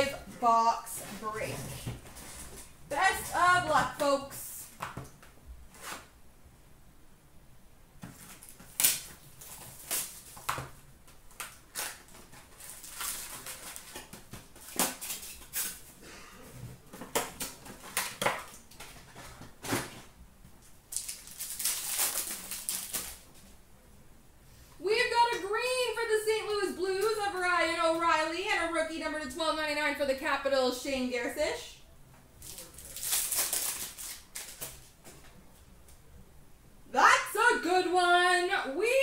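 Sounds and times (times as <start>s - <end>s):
cards crinkling: 8.0s - 16.0s, 20.9s - 23.4s, 32.4s - 35.0s
card packs ripping open: 8.1s - 16.0s, 20.9s - 23.3s, 32.4s - 34.8s.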